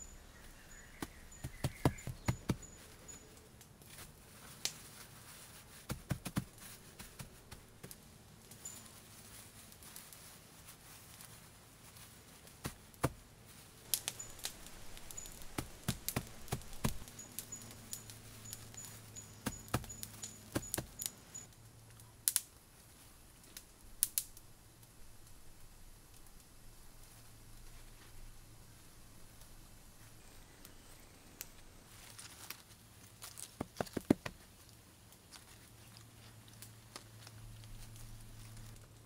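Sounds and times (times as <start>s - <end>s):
grass rustling: 0.0s - 39.0s
soft pats on soil: 0.3s - 3.2s, 3.8s - 21.5s, 31.9s - 39.0s.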